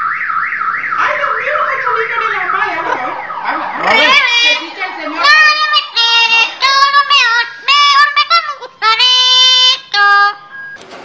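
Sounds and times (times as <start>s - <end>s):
parrot singing: 3.1s - 10.5s.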